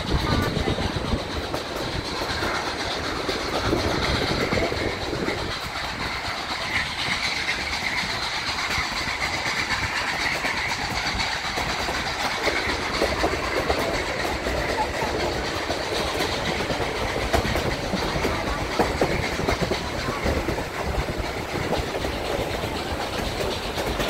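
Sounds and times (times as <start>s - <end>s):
train wheels on rails: 0.0s - 24.0s.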